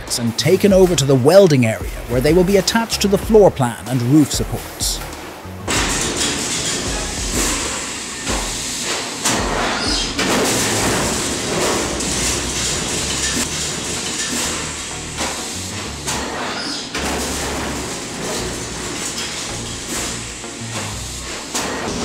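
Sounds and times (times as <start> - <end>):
repeated mechanical knocks: 4.4 - 22.0
pneumatic hiss: 4.7 - 22.0
press line mechanical clatter: 5.0 - 22.0.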